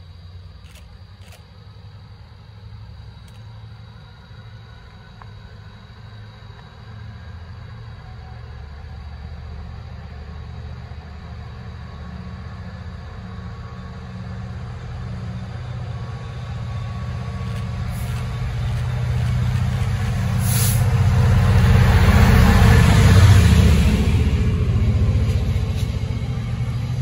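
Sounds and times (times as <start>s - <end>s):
diesel locomotive engine rumble: 0.0s - 27.0s
high hiss: 17.9s - 21.3s.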